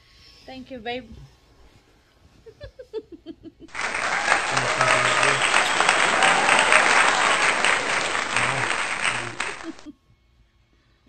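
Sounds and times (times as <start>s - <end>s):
crowd applause and cheering: 3.7s - 9.9s.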